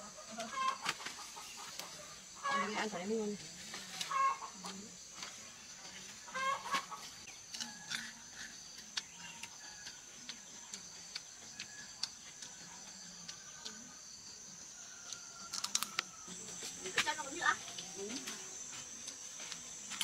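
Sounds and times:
chickens clucking: 0:00.0 - 0:03.0, 0:04.0 - 0:04.8, 0:05.8 - 0:13.9.

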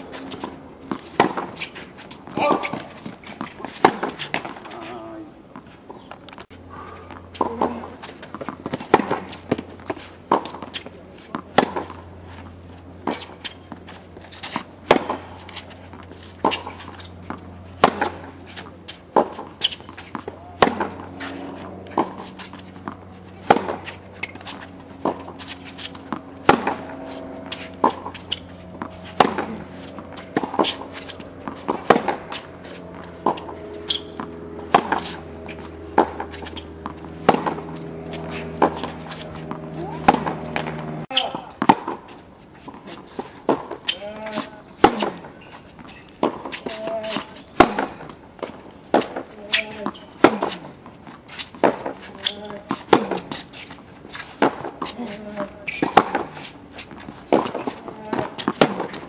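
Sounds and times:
tennis racket hitting ball: 0:00.0 - 0:04.8, 0:07.0 - 0:59.0
steady low hum: 0:00.0 - 0:59.0
ball bouncing on hard court: 0:15.9 - 0:42.0, 0:57.3 - 0:59.0.

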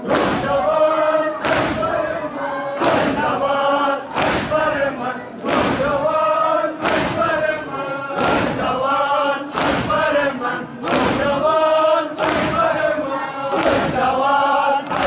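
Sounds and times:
men chanting in unison: 0:00.0 - 0:15.0
hands beating chests: 0:01.4 - 0:02.0, 0:04.1 - 0:04.7, 0:06.8 - 0:07.4, 0:08.2 - 0:08.7, 0:09.5 - 0:10.1, 0:10.8 - 0:11.4.

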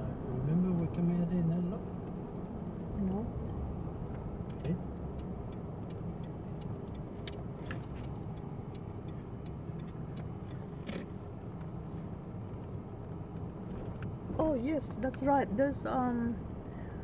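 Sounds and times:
car engine and tyre rumble: 0:00.0 - 0:17.0
small clicks and ticks: 0:04.5 - 0:11.0.

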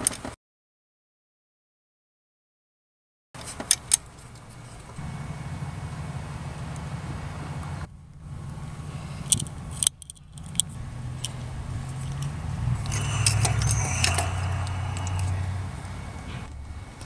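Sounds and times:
low vehicle rumble: 0:04.1 - 0:17.0
light metallic jingling: 0:08.9 - 0:12.4
sharp clicks: 0:09.2 - 0:11.4
thin high tones: 0:12.0 - 0:16.5.

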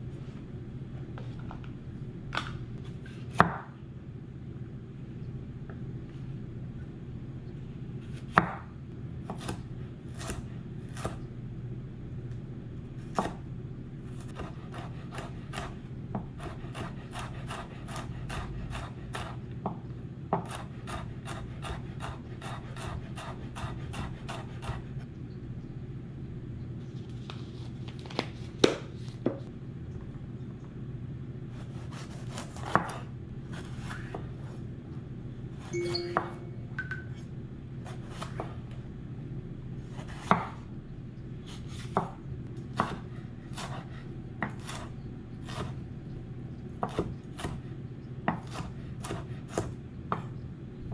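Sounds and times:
knife chopping on wooden board: 0:09.3 - 0:11.2, 0:20.4 - 0:24.8, 0:31.9 - 0:33.0, 0:42.8 - 0:44.9, 0:46.8 - 0:47.6, 0:48.3 - 0:50.3.

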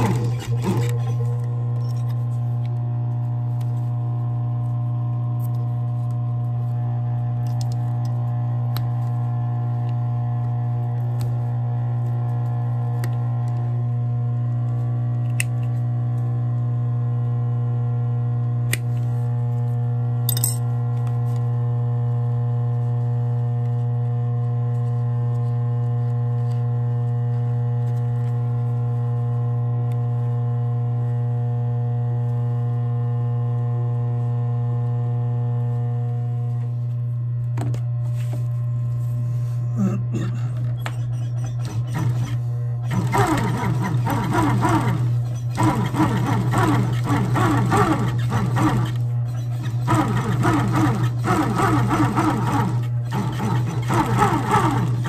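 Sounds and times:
sewing machine motor hum: 0:00.0 - 0:14.8, 0:39.8 - 0:55.0.

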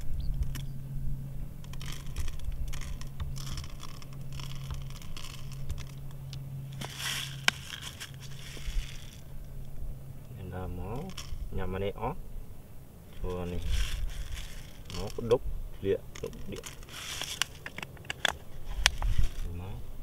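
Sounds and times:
plastic bottles crinkling: 0:01.6 - 0:09.3, 0:13.2 - 0:15.4, 0:16.1 - 0:19.5
hands rustling paper: 0:01.6 - 0:09.4, 0:13.2 - 0:15.4, 0:16.0 - 0:19.6.

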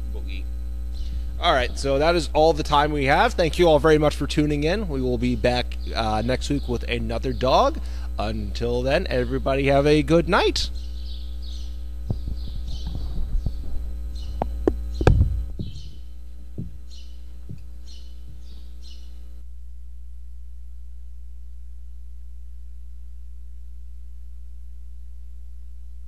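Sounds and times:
electrical mains hum: 0:00.0 - 0:26.0
bird chirping: 0:00.9 - 0:02.0, 0:05.5 - 0:08.0, 0:10.6 - 0:19.3
microphone handling knocks: 0:12.0 - 0:18.7.

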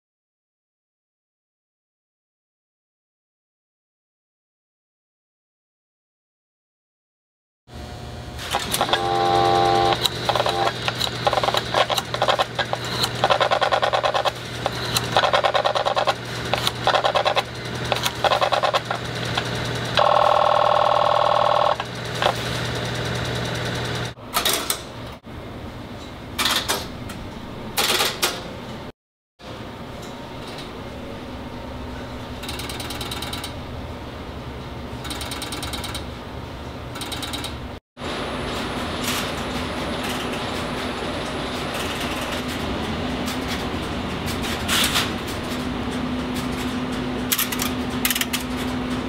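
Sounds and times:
steady hum: 0:07.7 - 0:22.3.

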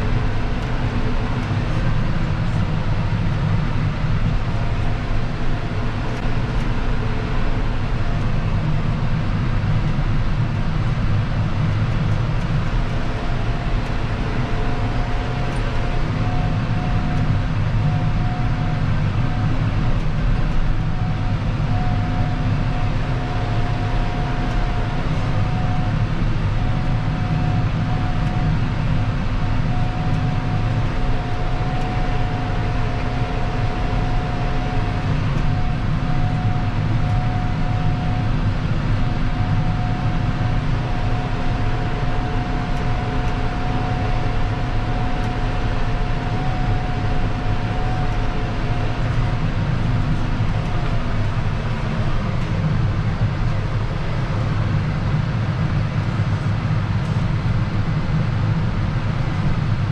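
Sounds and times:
tractor diesel engine rumble: 0:00.0 - 0:59.9.

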